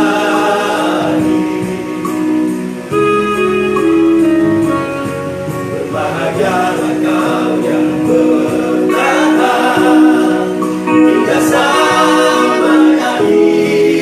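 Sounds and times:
male group singing in harmony: 0:00.0 - 0:02.5, 0:05.7 - 0:14.0.

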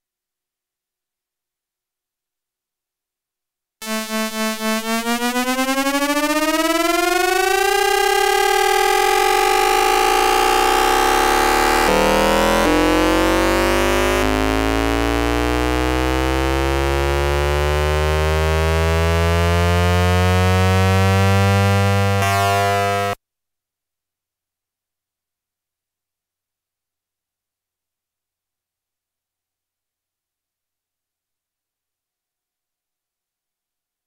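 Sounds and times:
electronic tones rising in pitch: 0:03.8 - 0:23.2
steady electronic tone: 0:03.8 - 0:23.2.

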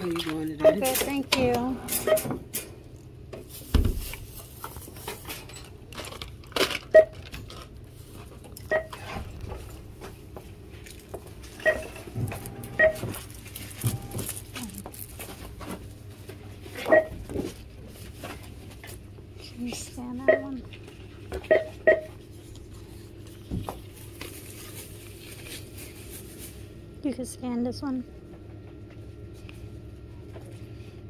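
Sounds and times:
merchandise and paper rustling: 0:00.0 - 0:31.0.

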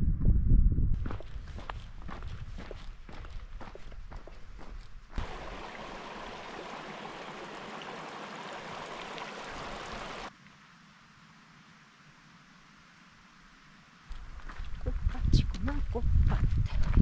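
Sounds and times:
footsteps on dirt trail: 0:01.0 - 0:06.8, 0:14.1 - 0:15.3
creek running over rocks: 0:05.2 - 0:10.3.

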